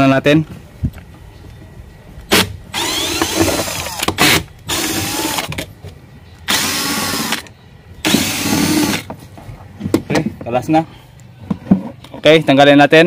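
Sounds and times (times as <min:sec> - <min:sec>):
cordless drill whining: 0:02.7 - 0:05.5, 0:06.5 - 0:09.1.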